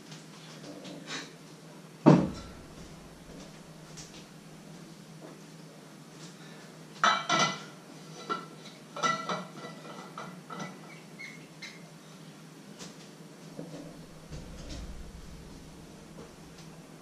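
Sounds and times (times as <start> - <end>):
steady low hum: 2.1 - 5.0, 13.7 - 17.0.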